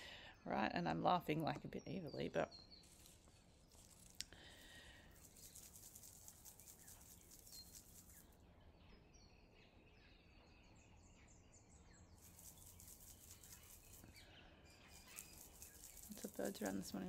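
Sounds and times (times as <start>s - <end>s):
soft high hiss: 2.8s - 8.4s, 14.8s - 17.0s.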